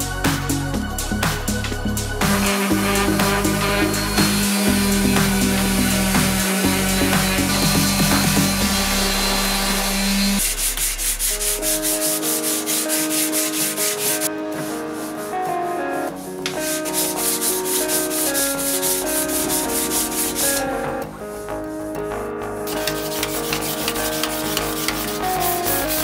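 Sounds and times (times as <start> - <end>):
orbital sander running: 2.3 - 12.7
hand sanding block rubbing: 2.3 - 15.3, 16.5 - 20.6, 22.8 - 26.0.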